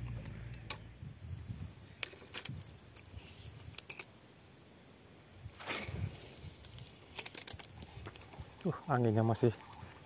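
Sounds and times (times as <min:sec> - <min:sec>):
fishing reel clicks and rattles: 0:06.7 - 0:08.2.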